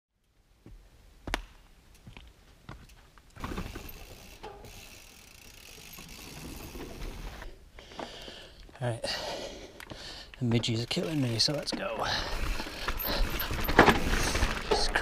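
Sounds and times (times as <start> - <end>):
bike mechanical ticking and rattles: 2.8 - 8.7, 9.6 - 15.0
bike tyres rumbling on planks: 3.4 - 4.9, 10.6 - 15.0.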